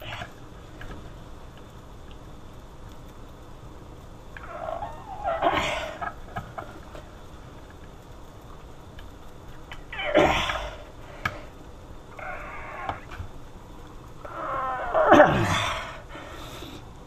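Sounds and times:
man grunting with effort: 14.7 - 15.9.

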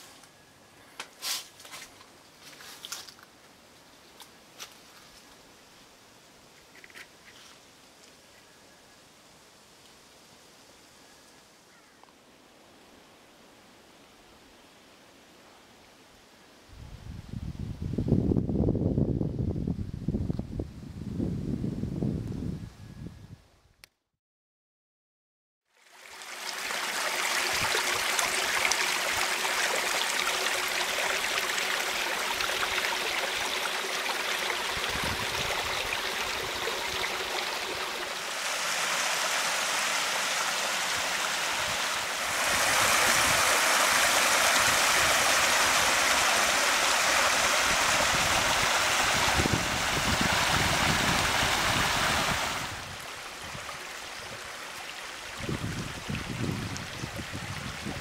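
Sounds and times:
stream running over rocks: 25.7 - 58.0.

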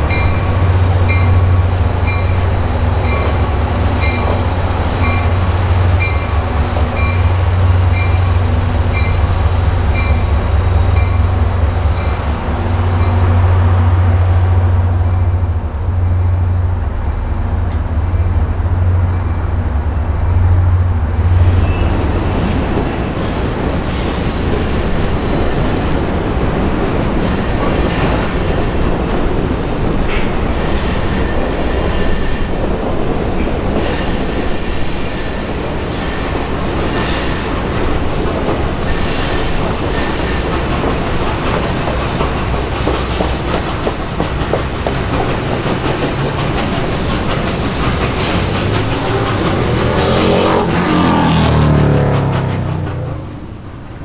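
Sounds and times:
heavy low train rumble: 0.0 - 54.0
steel wheels squealing on rails: 21.0 - 51.6.

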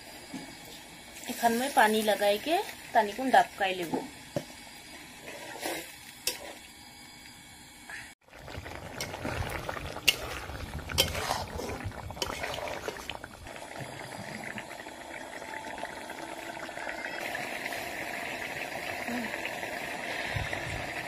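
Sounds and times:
curry bubbling: 8.2 - 21.0.

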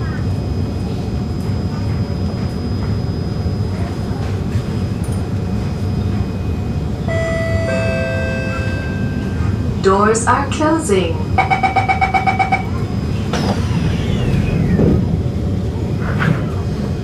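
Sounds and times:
train interior hum: 0.0 - 17.0
falling two-note door chime: 7.1 - 9.6.

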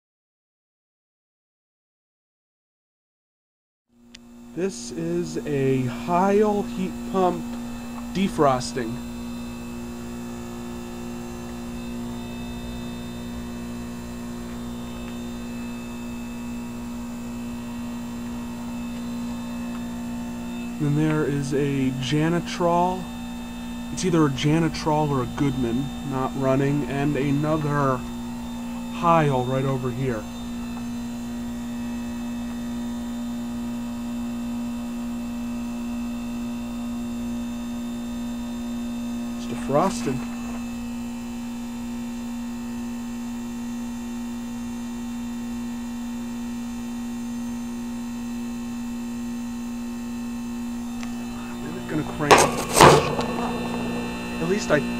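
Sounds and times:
heat pump compressor humming: 4.1 - 34.4, 46.7 - 54.9.

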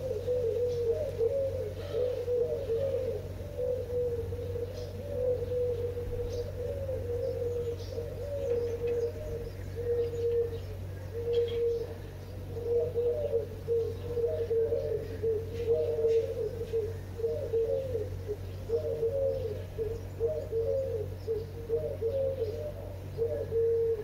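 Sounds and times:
birds cooing: 0.0 - 24.0
steady low hum: 0.0 - 24.0.

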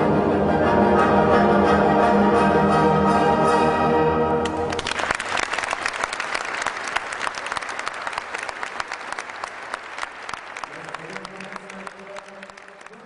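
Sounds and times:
orchestral music: 0.0 - 5.0
audience applause: 4.6 - 13.0.

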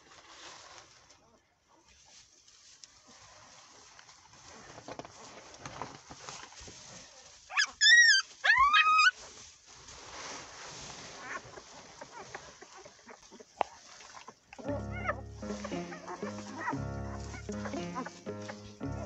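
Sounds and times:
rustling in hay: 0.0 - 1.2, 1.8 - 13.2, 14.7 - 19.0
puppy squealing: 7.5 - 9.1.

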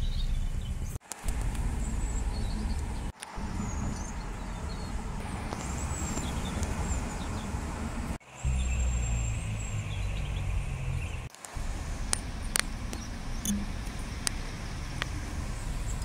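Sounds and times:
low rumble of road traffic: 0.0 - 16.0
faint high chirps: 8.2 - 11.3.

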